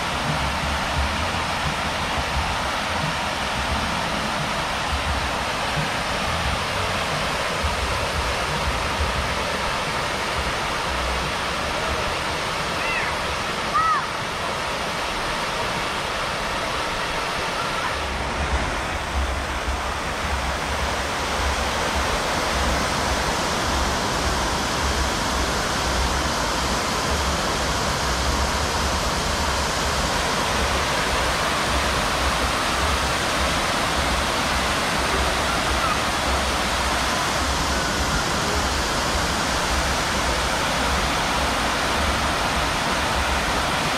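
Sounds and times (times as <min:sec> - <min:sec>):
fountain water splashing: 0:00.0 - 0:43.9.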